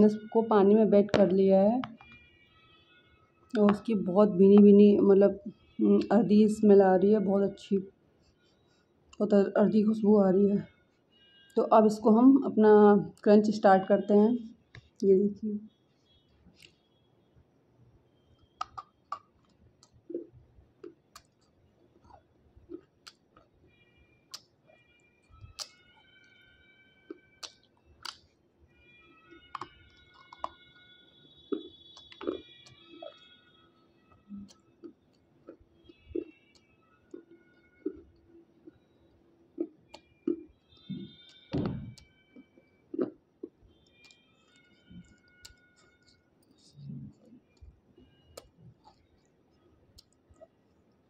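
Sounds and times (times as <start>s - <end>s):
soft chewing: 16.0s - 17.0s, 17.9s - 51.0s
stone crunching between teeth: 31.5s - 33.2s, 42.9s - 46.2s.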